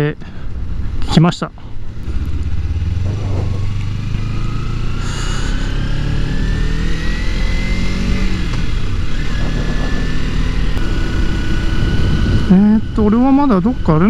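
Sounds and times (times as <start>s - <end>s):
motorcycle engine accelerating: 1.8s - 14.0s
wind rumble on microphone: 2.1s - 4.1s, 8.0s - 14.0s.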